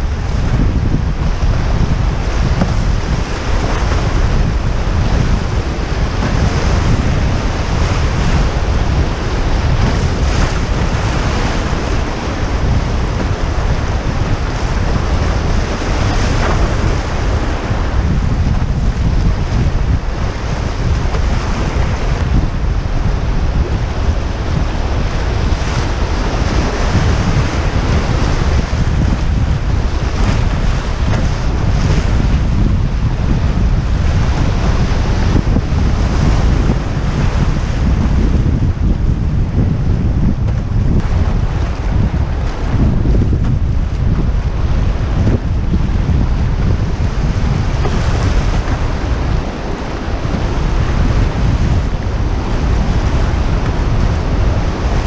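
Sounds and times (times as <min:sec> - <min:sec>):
wind rumble on microphone: 0:00.0 - 0:55.0
whitewater rushing: 0:40.9 - 0:55.0.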